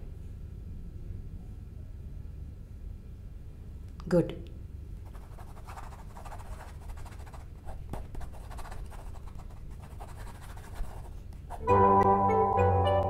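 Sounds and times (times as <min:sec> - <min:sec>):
low room hum: 0:00.0 - 0:13.0
music with sustained notes: 0:11.6 - 0:13.0.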